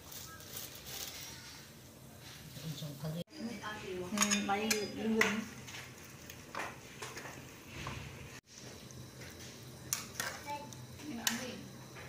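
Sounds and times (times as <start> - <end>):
water simmering: 4.5 - 12.0.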